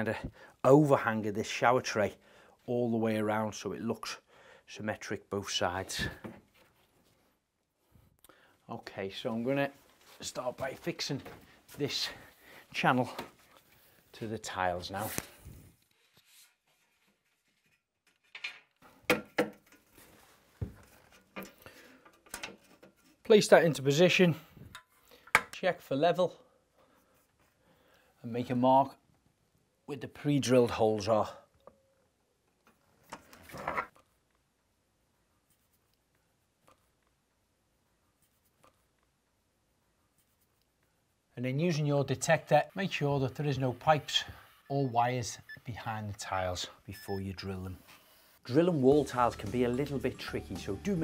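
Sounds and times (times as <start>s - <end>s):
pencil scratching tile: 35.2s - 44.8s.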